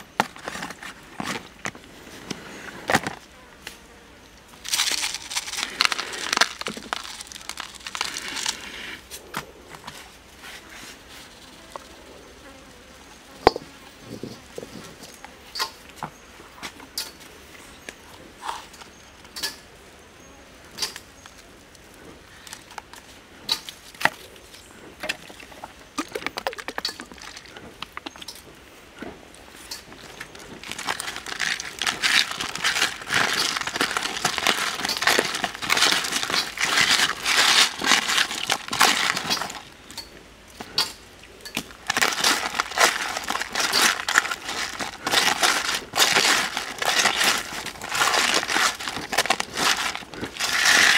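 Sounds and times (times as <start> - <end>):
salt crunching under rubbing hands: 4.5 - 11.9, 23.8 - 28.5, 29.5 - 39.9, 41.6 - 50.9.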